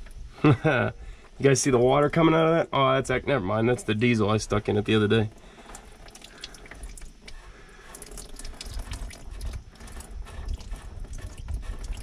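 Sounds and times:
oil trickling and dripping: 0:03.7 - 0:12.0.

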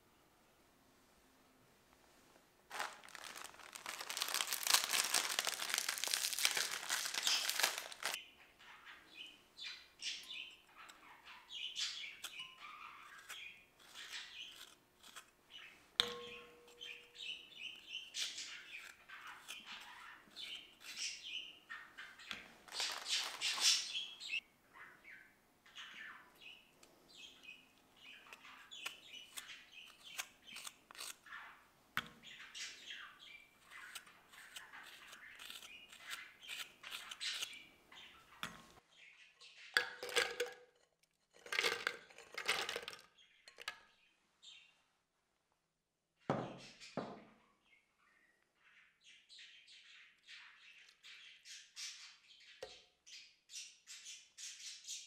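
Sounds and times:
plastic wrapper crinkling: 0:02.7 - 0:08.2, 0:22.6 - 0:24.0, 0:41.4 - 0:43.1
knife scraping biscuit filling: 0:13.0 - 0:15.4, 0:28.8 - 0:31.3, 0:33.6 - 0:37.7.

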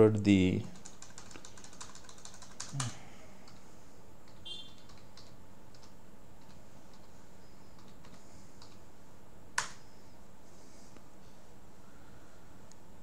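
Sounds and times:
keyboard keystrokes: 0:00.8 - 0:02.9, 0:04.3 - 0:07.1.

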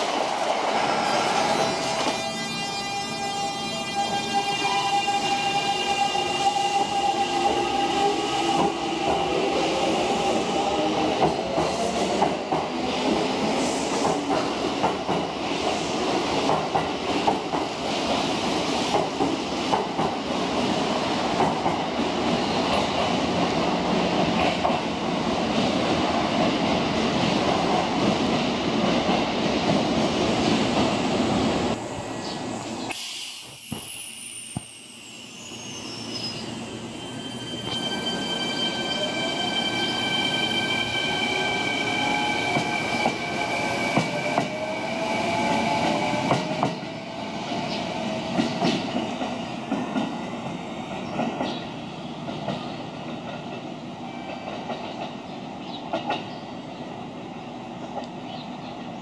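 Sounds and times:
train rumbling: 0:00.0 - 0:56.9.

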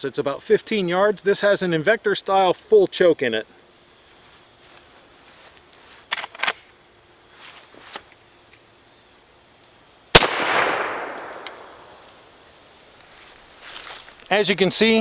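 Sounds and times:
shotgun shot: 0:10.2 - 0:12.0
sharp clicks: 0:10.2 - 0:12.2.

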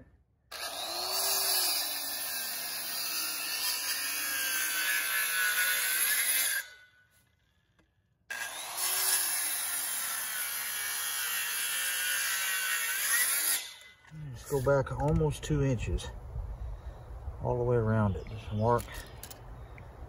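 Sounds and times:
circular saw cutting log: 0:00.5 - 0:07.4, 0:08.3 - 0:14.8.

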